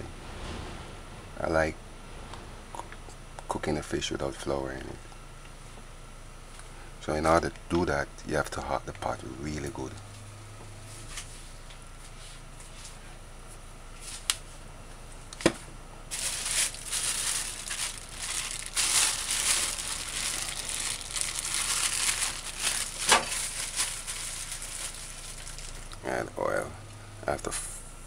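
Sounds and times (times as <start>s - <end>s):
steady low hum: 0.0s - 28.0s
crinkling and rustling: 16.1s - 26.1s.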